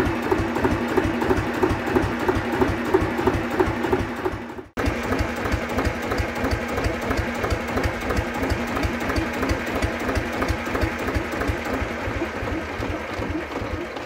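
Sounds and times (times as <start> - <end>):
diesel engine running steadily: 0.0 - 14.0.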